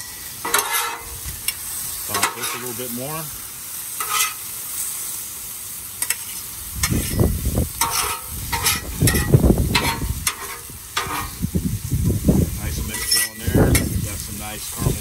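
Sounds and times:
steel spatulas scraping a griddle: 0.0s - 3.0s, 3.9s - 5.1s, 6.0s - 11.4s, 12.8s - 15.0s
steady sizzle: 0.0s - 15.0s.

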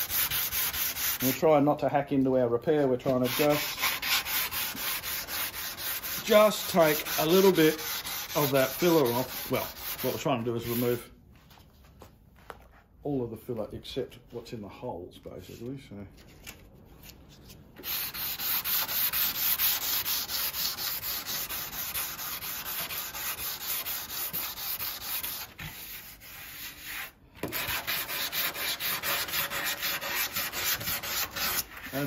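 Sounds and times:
sandpaper scratching back and forth: 0.0s - 1.5s, 3.0s - 11.0s, 17.8s - 32.0s.

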